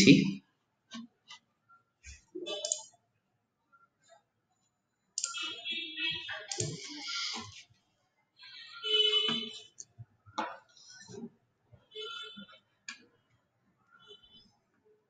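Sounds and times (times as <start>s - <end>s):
computer mouse clicks: 2.5s - 2.9s, 5.2s - 5.4s, 6.5s - 7.5s.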